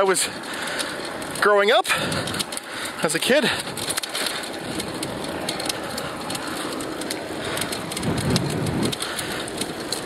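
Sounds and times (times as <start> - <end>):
bicycle tyres on gravel: 0.0 - 10.0.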